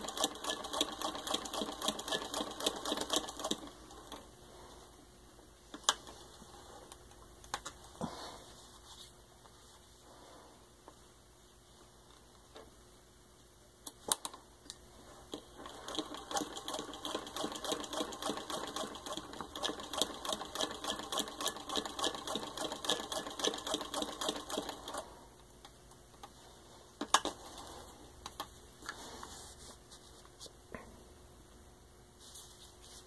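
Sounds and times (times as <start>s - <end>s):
sewing machine clacking: 0.0s - 3.7s, 15.3s - 25.0s.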